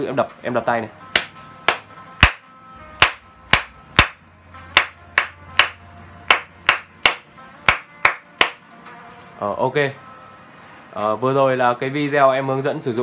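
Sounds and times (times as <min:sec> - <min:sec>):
person clapping hands: 0:01.2 - 0:02.4, 0:04.8 - 0:08.6.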